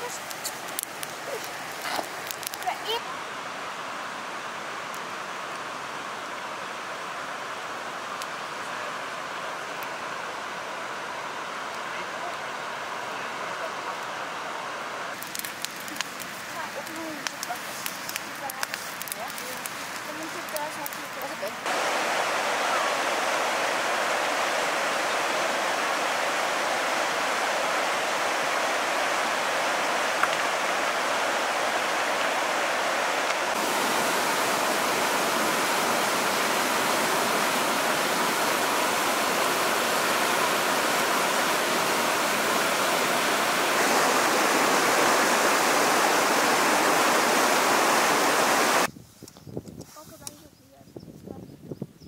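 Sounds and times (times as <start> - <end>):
river rushing over rocks: 20.1 - 48.9.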